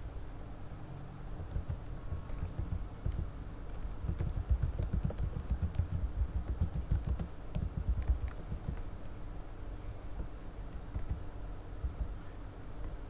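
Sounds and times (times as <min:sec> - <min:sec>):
keyboard key clicks: 0:01.4 - 0:09.0, 0:10.7 - 0:11.2.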